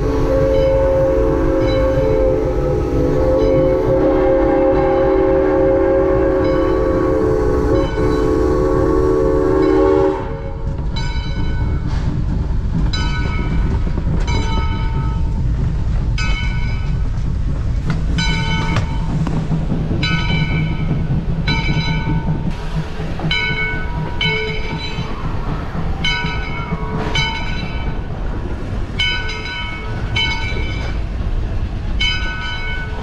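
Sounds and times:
steam locomotive whistle chord: 0.0s - 10.6s
locomotive bell ringing: 1.6s - 2.4s, 6.4s - 7.0s, 7.7s - 8.4s, 9.6s - 11.8s, 18.2s - 19.1s, 20.0s - 22.4s, 23.3s - 28.1s, 29.0s - 31.0s, 32.0s - 33.0s.

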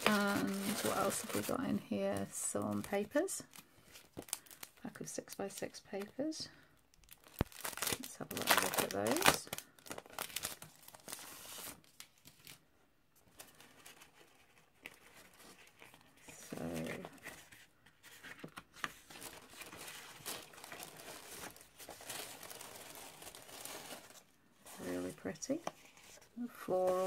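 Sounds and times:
paper rustling: 0.0s - 4.7s, 13.2s - 27.0s
cellophane crinkling: 0.0s - 12.6s, 13.2s - 27.0s.

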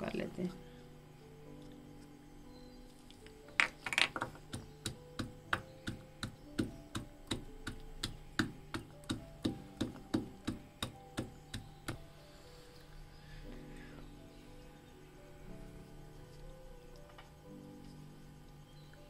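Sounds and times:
pestle pounding in clay mortar: 4.5s - 12.0s.

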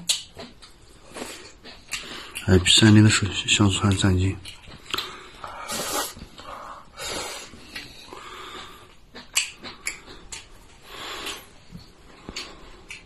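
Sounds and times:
chewing: 0.0s - 13.0s
man slurping noodles: 5.5s - 8.8s.

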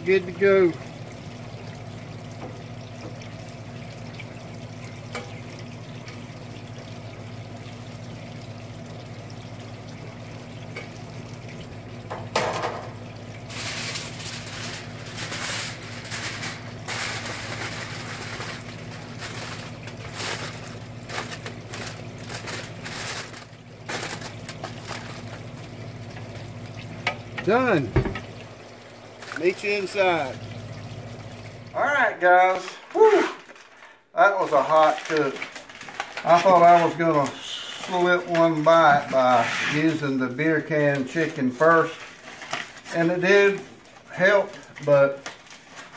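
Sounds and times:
steady hiss and low hum: 0.0s - 45.9s
aluminium foil crinkling: 13.4s - 25.6s, 32.5s - 39.2s, 40.9s - 45.9s.

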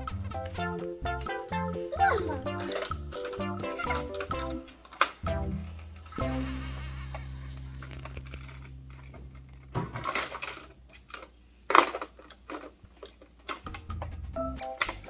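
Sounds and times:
plastic toys clicking and clattering: 0.0s - 6.2s, 7.8s - 15.0s
steady electronic tone: 6.2s - 10.8s.

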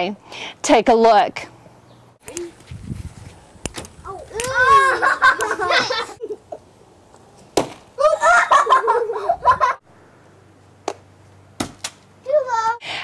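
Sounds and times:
children's voices: 4.0s - 6.2s, 12.2s - 12.8s
ball smacking wooden shed: 7.4s - 8.0s, 10.8s - 12.1s.

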